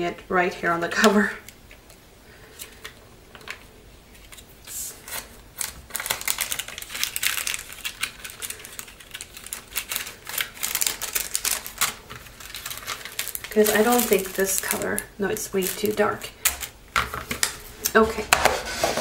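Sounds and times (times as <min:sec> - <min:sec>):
small items rattling in plastic box: 0:05.6 - 0:17.5.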